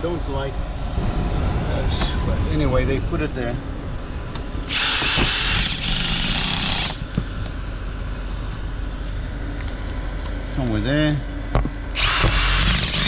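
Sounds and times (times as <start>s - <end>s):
cordless drill driving screw into metal: 4.7s - 7.0s, 12.0s - 13.0s.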